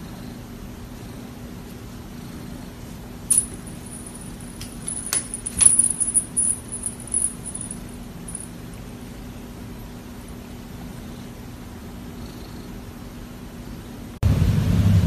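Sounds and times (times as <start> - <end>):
low steady hum: 0.0 - 15.0
small bell jingling: 3.3 - 8.5.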